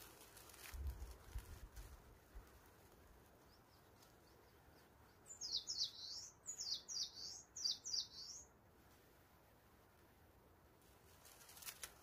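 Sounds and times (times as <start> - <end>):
songbird singing: 2.8 - 8.7.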